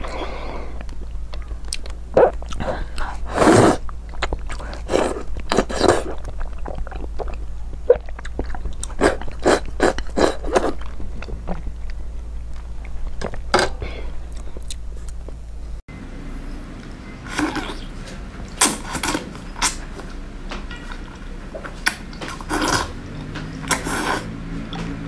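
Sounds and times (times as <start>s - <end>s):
low hum: 0.0s - 25.0s
slurping food: 2.2s - 3.8s, 4.5s - 7.1s, 22.3s - 24.5s
wet chewing and lip smacks: 3.8s - 13.4s.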